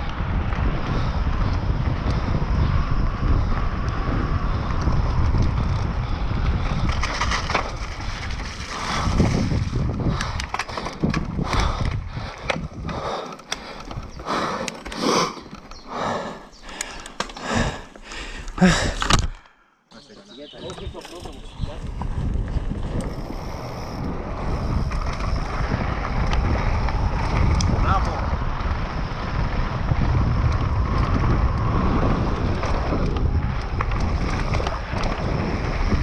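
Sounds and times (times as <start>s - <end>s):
wind rushing over microphone: 0.0s - 19.4s, 20.4s - 36.0s
bike tyre rumble: 0.0s - 19.5s, 20.3s - 36.0s
bike clattering over rocks: 6.8s - 11.8s.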